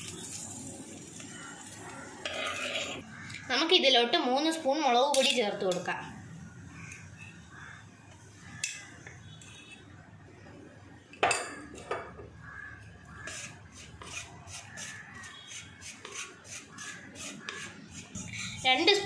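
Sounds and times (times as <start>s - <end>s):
spatula scraping pot: 2.1s - 3.3s, 13.1s - 19.0s.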